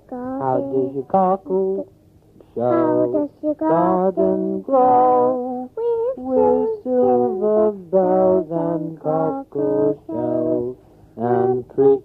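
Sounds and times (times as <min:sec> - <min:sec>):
voices singing: 0:00.1 - 0:12.0.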